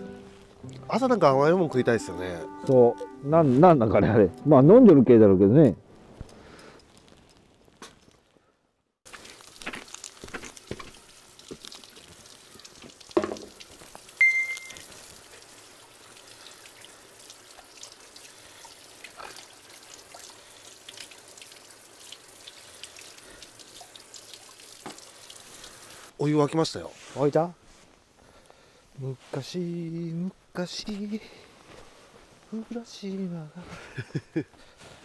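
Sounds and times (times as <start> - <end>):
wood fire crackling: 5.8 - 29.4.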